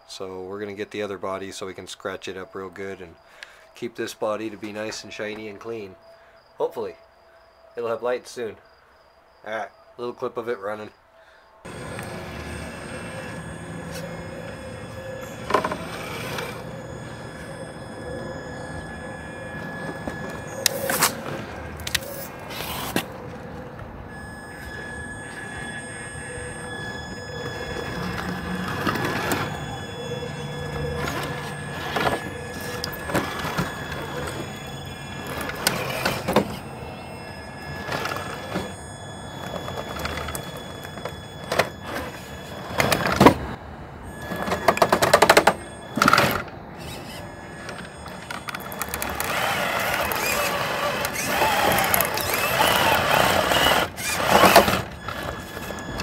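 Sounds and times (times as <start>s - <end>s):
toy car electric motor whining: 11.6s - 56.0s.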